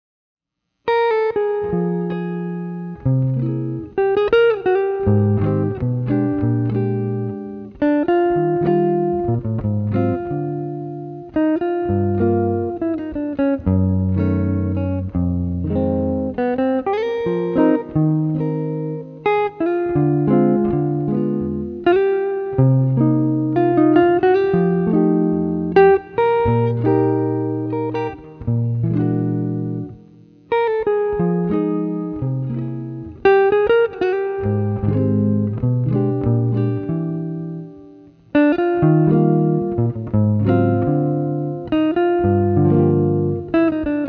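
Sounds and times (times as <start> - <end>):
solo jazz guitar chords: 0.9 - 44.0.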